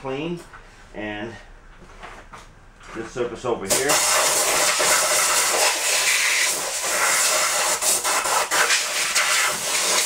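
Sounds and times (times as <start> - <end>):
compressed air blow gun hissing: 3.7 - 10.0.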